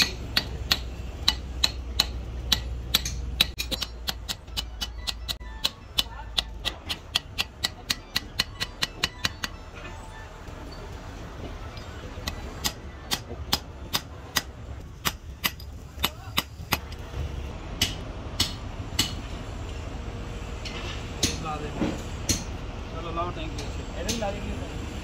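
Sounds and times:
hammer tapping steel punch: 0.0 - 9.6.

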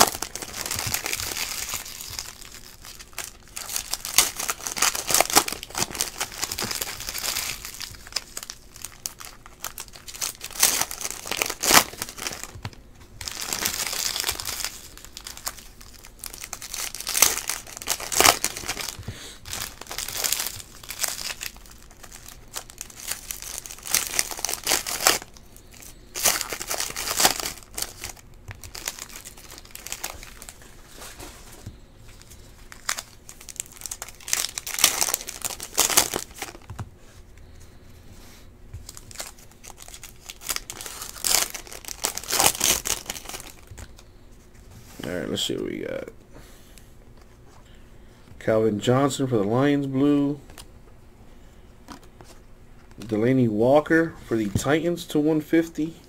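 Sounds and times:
foil wrappers tearing and crinkling: 0.0 - 31.2, 32.2 - 36.8, 38.8 - 44.1.

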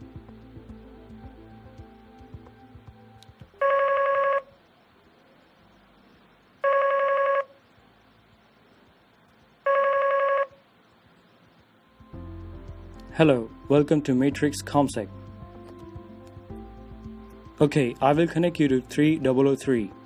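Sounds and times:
electronic phone trilling ring: 3.6 - 4.5, 6.6 - 7.6, 9.7 - 10.6.

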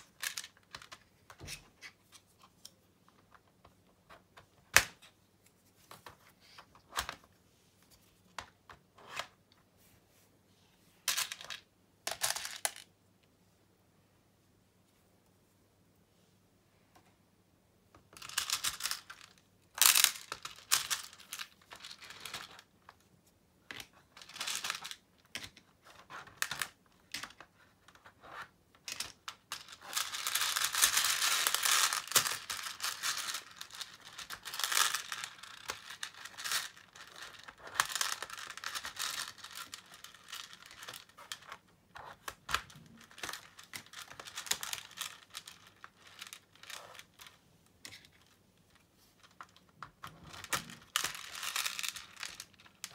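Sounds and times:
plastic beads clicking and rattling: 0.0 - 1.4, 11.1 - 12.9, 18.1 - 23.0, 23.7 - 52.9.

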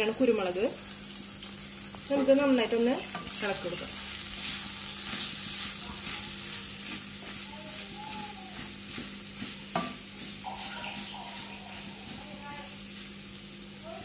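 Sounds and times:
meat sizzling in a pan: 0.0 - 14.0.

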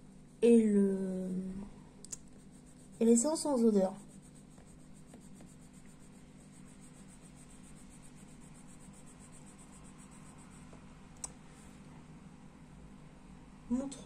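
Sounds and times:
pencil scratching paper: 2.3 - 10.8.

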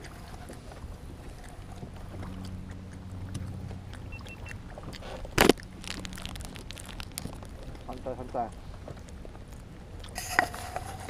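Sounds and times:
low steady hum: 0.0 - 11.0
bag rustling against microphone: 4.7 - 11.0
plastic snack bag crackling: 5.1 - 8.6.

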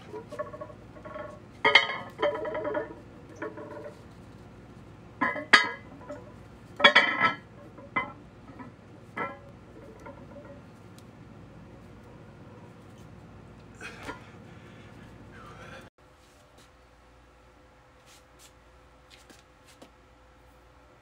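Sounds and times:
metal weight plates clinking: 0.0 - 4.0, 5.2 - 10.7.

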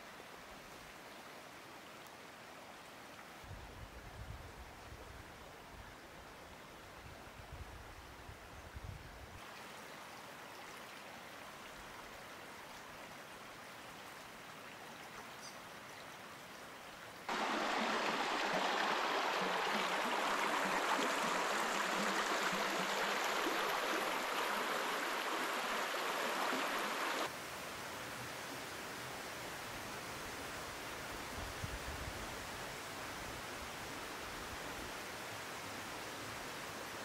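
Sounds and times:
faint steady hiss: 0.0 - 37.0
stream rushing over stones: 17.3 - 27.4.

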